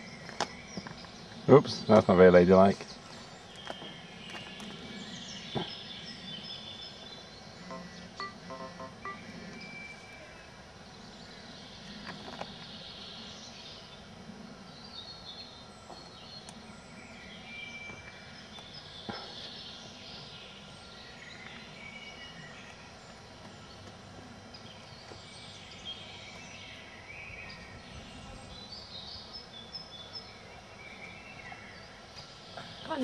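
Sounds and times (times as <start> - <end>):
faint background noise: 0.0 - 33.0
small birds chirping: 0.0 - 33.0.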